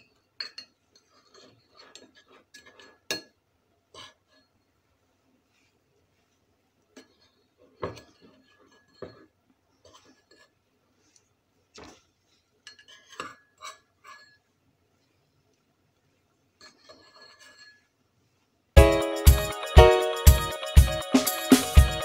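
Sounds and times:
utensil scraping a metal pot: 0:00.9 - 0:03.1, 0:03.9 - 0:04.6, 0:07.0 - 0:11.1, 0:12.7 - 0:14.5, 0:16.6 - 0:18.0.

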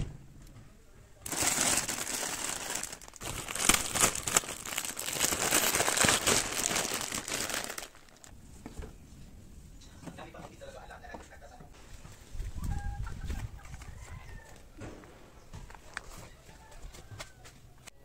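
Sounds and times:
plastic wrapping crinkling: 0:01.2 - 0:08.3.

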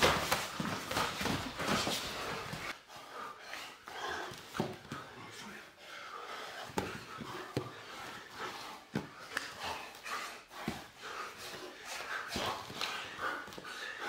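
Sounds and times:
bodies slapping and thudding on mat: 0:00.0 - 0:02.7
men breathing hard: 0:00.0 - 0:14.0.

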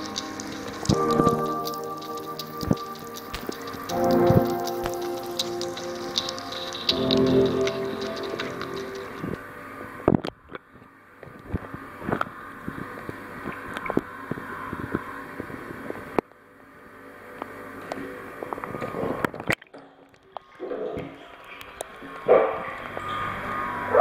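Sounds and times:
water drips and splashes: 0:00.0 - 0:09.5
steady hiss: 0:00.0 - 0:10.2.

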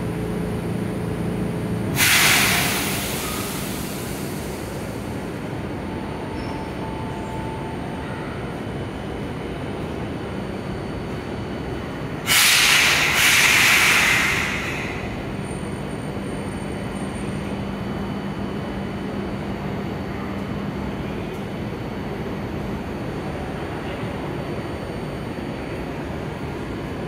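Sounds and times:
tram low hum: 0:00.0 - 0:27.0
compressed air hiss: 0:02.0 - 0:04.4, 0:12.3 - 0:15.0.

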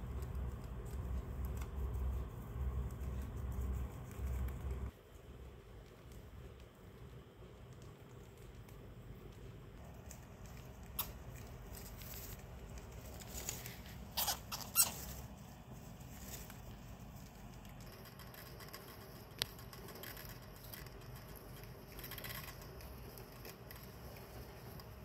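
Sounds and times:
hamsters scurrying in bedding: 0:00.0 - 0:25.0
wood shavings crackling: 0:08.7 - 0:25.0.

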